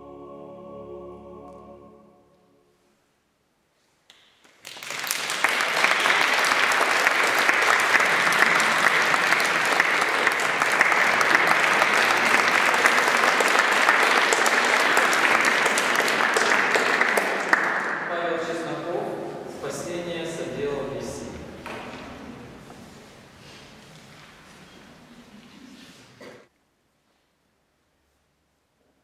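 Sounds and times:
audience applause: 0:04.5 - 0:18.5.

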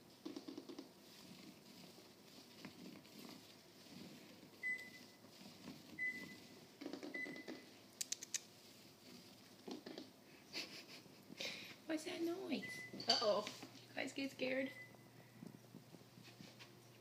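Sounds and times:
kittens' paws scuffling on tiles: 0:00.1 - 0:13.9, 0:15.4 - 0:17.0
sharp clicks: 0:08.0 - 0:08.5.

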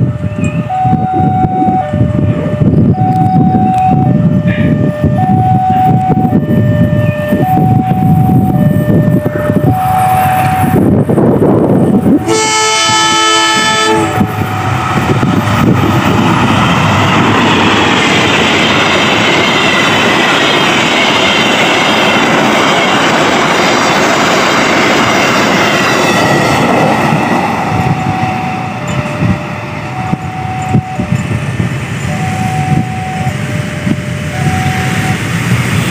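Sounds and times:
two-tone crossing alarm: 0:00.3 - 0:10.8, 0:26.1 - 0:35.5
locomotive horn: 0:12.1 - 0:14.7.

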